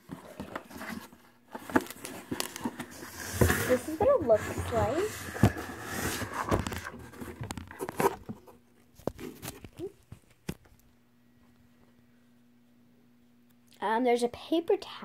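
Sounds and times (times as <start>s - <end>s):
cardboard flaps scraping and rustling: 0.0s - 9.9s.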